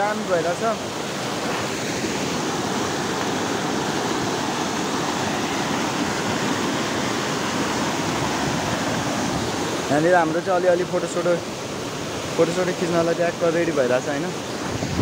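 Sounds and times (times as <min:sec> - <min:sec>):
river rapids rushing: 0:00.0 - 0:15.0.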